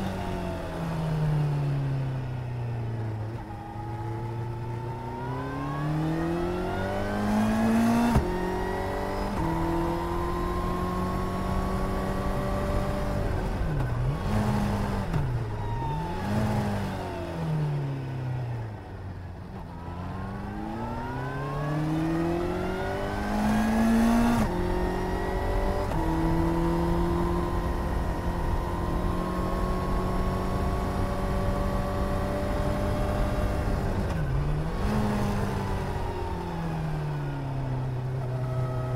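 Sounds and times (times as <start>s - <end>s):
motorcycle engine revving: 19.9s - 37.0s.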